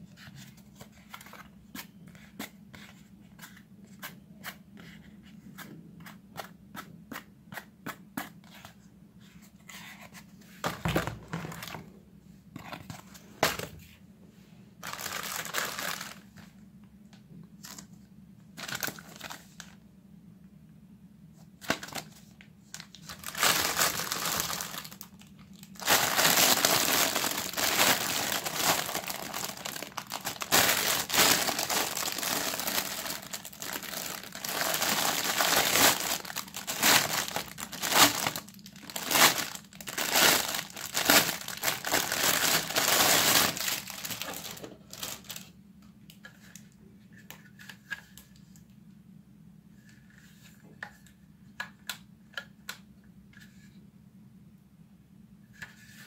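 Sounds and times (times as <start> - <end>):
plastic bag crinkling: 14.8 - 16.4, 18.6 - 19.8, 21.7 - 45.5.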